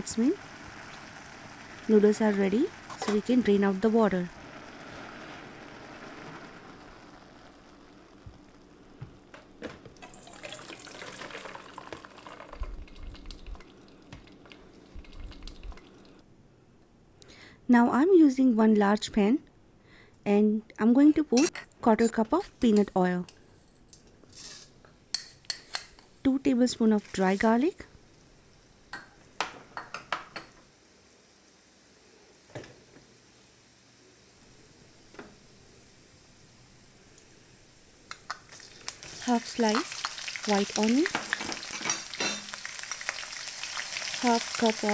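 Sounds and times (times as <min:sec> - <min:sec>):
water pouring into a sink: 0:09.9 - 0:16.2, 0:38.4 - 0:44.9
utensils clinking against pan: 0:41.1 - 0:42.6.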